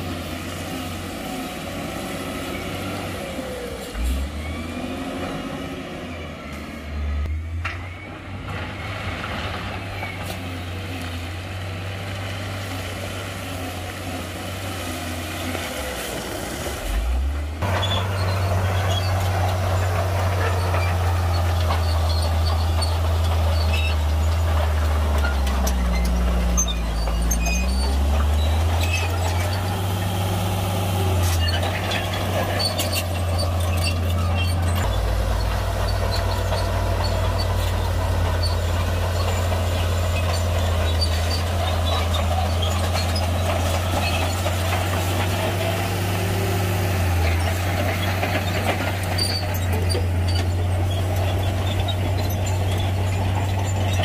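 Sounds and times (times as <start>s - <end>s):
diesel earthmoving machinery: 0.0s - 54.0s
clanks and rattles: 17.6s - 54.0s.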